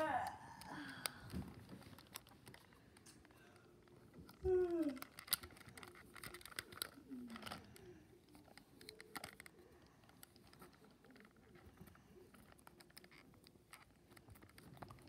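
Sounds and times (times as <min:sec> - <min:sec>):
child voicing toy creature: 0:00.0 - 0:00.7, 0:04.4 - 0:05.2.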